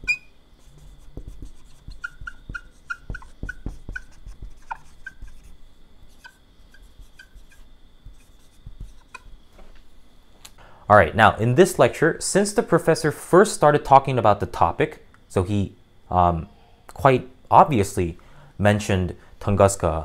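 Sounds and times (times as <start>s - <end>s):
marker squeaking on whiteboard: 0.0s - 9.4s
marker tip tapping: 1.2s - 5.5s, 6.2s - 9.3s.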